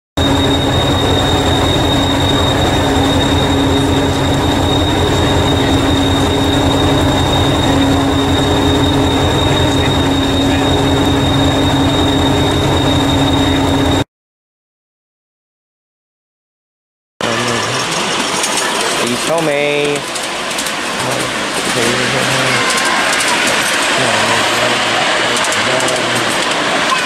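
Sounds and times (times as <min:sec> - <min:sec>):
diesel engine idling throb: 0:00.2 - 0:14.0
high-pitched whine: 0:00.2 - 0:14.0, 0:17.2 - 0:27.0.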